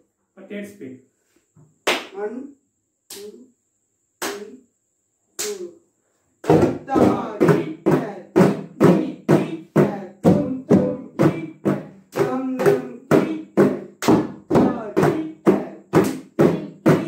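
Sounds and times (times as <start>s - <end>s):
drums struck in rhythm: 6.4s - 17.0s.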